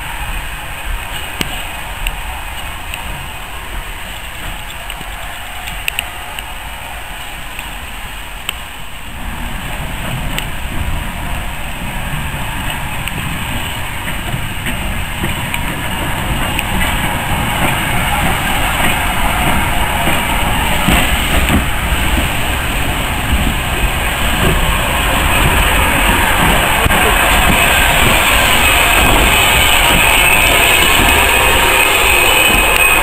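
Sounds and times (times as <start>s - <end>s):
wheels clicking over rail joints: 0.0s - 6.6s, 7.2s - 33.0s
steam locomotive rumbling: 0.0s - 33.0s.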